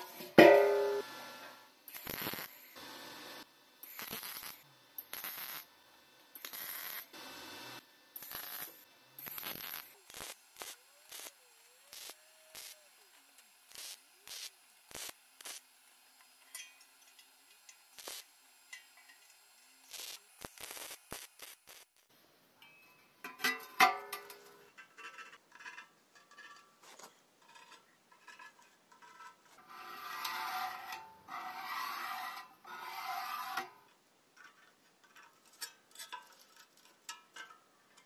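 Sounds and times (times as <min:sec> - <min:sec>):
mig welder bursts: 0:00.0 - 0:16.0, 0:17.9 - 0:22.1.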